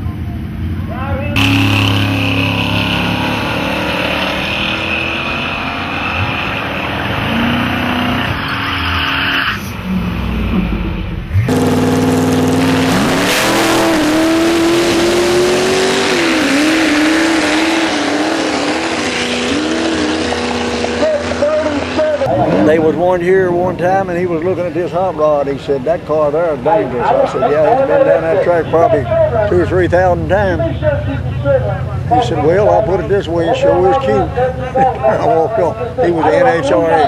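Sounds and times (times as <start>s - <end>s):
racing car engine at full throttle: 0.0s - 37.0s
engine revving sharply: 1.3s - 23.0s.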